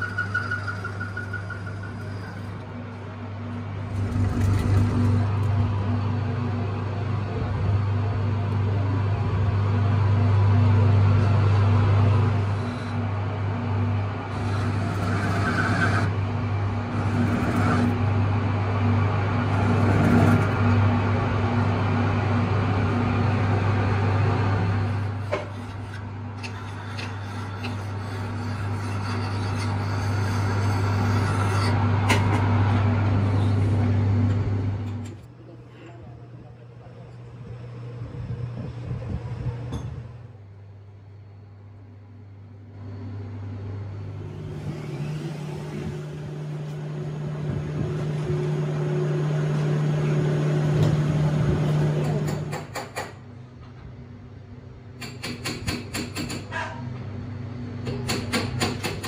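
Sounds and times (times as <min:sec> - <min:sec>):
lathe tool cutting steel: 0:00.0 - 0:03.0, 0:11.2 - 0:18.2, 0:24.6 - 0:33.9
metal lathe humming: 0:00.0 - 0:35.1, 0:43.9 - 0:52.2.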